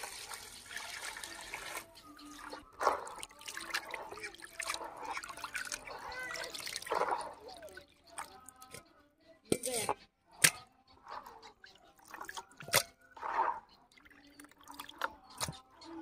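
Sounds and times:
water pouring into plastic basin: 0:00.0 - 0:01.9
hands splashing meat in water: 0:02.8 - 0:07.4.

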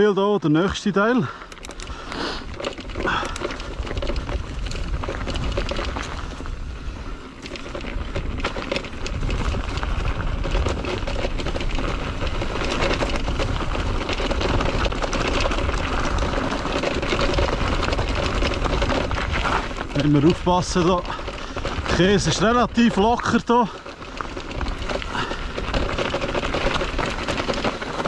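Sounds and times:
tyres rolling over loose stones: 0:00.4 - 0:28.0
bike rattles and knocks: 0:00.5 - 0:28.0
wind buffeting microphone: 0:01.7 - 0:28.0.

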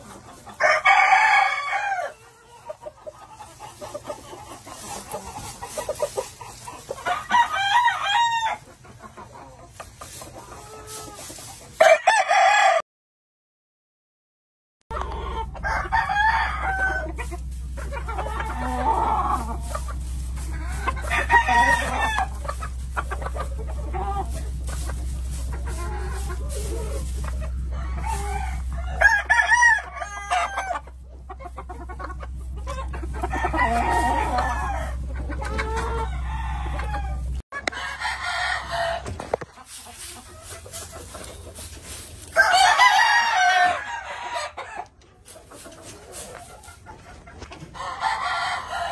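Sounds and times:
roosters crowing: 0:00.0 - 0:08.9, 0:10.5 - 0:12.8, 0:14.9 - 0:45.1, 0:47.6 - 0:48.9
chickens clucking: 0:00.0 - 0:12.7, 0:14.9 - 0:48.9
steady low hum: 0:15.4 - 0:30.0, 0:30.8 - 0:37.4.

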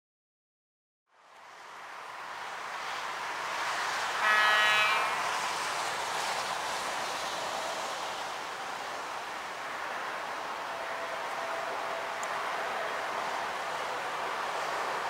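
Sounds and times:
steady rushing noise: 0:01.3 - 0:15.0
locomotive horn chord: 0:04.2 - 0:05.2.

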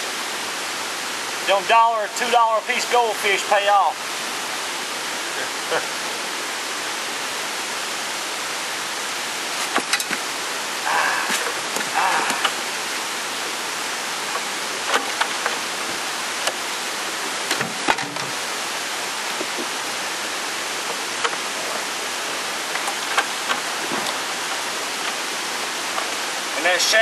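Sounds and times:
rushing hiss: 0:00.0 - 0:27.0.

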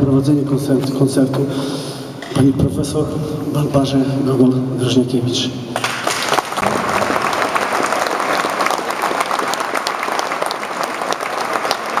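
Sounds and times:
audience applauding: 0:05.8 - 0:12.0.

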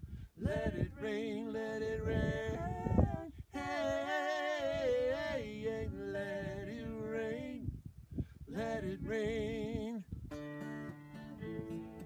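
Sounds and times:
man and woman singing in harmony: 0:00.4 - 0:07.8, 0:08.5 - 0:09.9
strummed acoustic guitar: 0:10.3 - 0:12.0.

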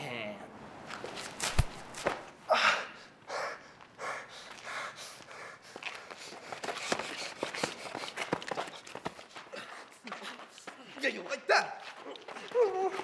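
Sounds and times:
man gasping in pain: 0:02.5 - 0:03.6.

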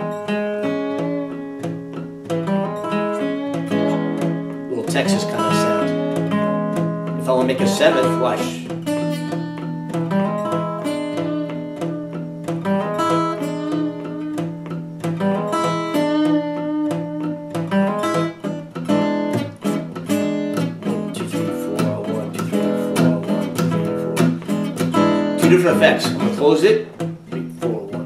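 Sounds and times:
fingerpicked acoustic guitar blues: 0:00.0 - 0:28.0.

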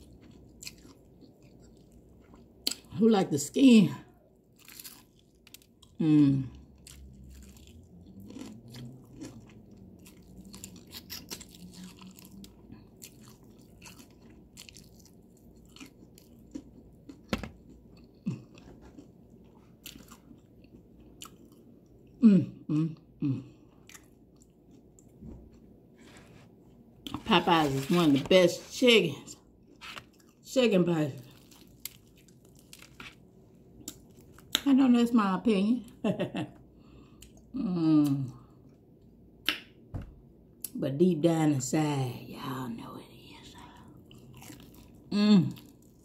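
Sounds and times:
chewing crispy fried chicken: 0:00.0 - 0:03.0, 0:04.1 - 0:22.8, 0:28.7 - 0:34.7, 0:43.6 - 0:46.0.

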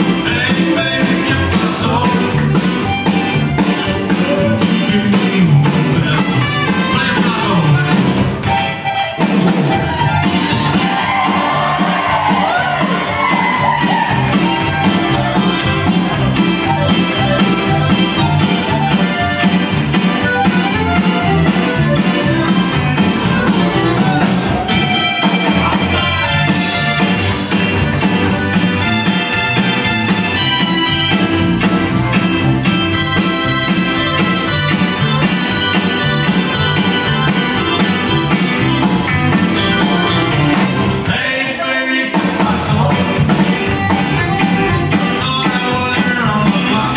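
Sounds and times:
drum beat: 0:00.0 - 0:41.1, 0:42.2 - 0:46.9
button accordion: 0:00.0 - 0:41.3, 0:42.8 - 0:46.9
electric guitar: 0:00.0 - 0:46.9
keyboard: 0:00.0 - 0:46.9
live band playing upbeat song: 0:00.0 - 0:46.9.

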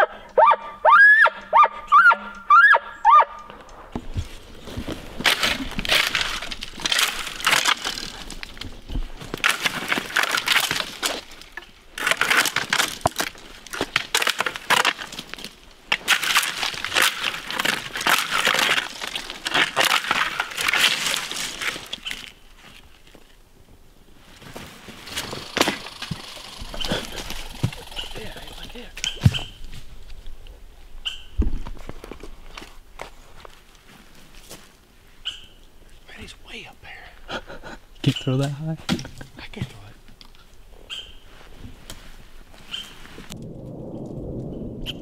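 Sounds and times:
footsteps crunching through dry leaves: 0:24.2 - 0:28.2.

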